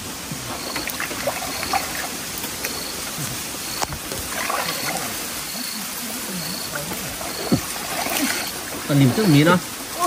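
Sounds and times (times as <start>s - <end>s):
person wading in muddy water: 0.1s - 10.0s
small splashes: 0.4s - 10.0s.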